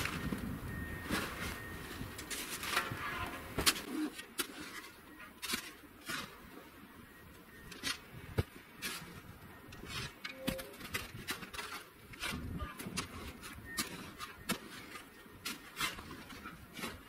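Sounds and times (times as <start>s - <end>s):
snow shovel scraping snow: 0.0s - 6.5s.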